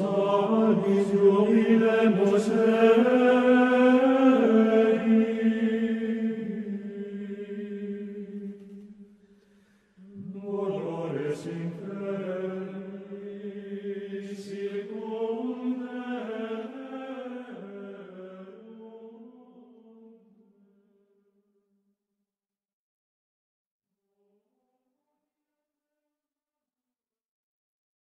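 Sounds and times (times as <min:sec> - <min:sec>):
chant in long sustained notes: 0:00.0 - 0:20.5.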